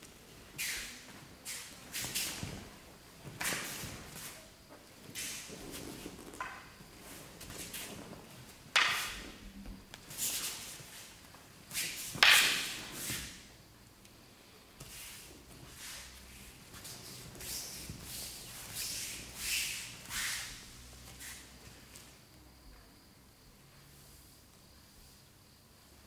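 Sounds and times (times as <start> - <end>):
wooden swords clacking: 6.3 - 6.8, 8.7 - 9.4, 11.8 - 13.3.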